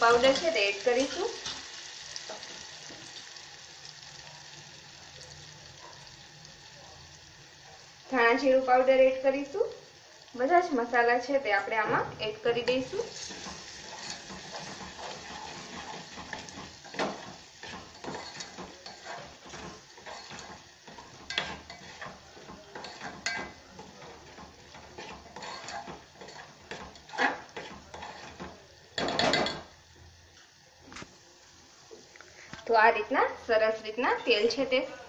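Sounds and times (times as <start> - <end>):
faint sizzle: 0.0 - 35.0
metal spoon scraping a pot: 12.6 - 29.6
spoon clinking against pot: 16.2 - 27.3.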